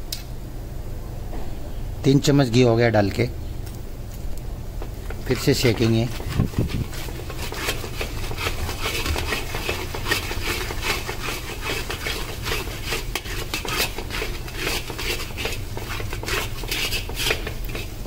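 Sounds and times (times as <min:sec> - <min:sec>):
steady low hum: 0:00.0 - 0:18.0
metal spatula scraping pan: 0:05.0 - 0:18.0.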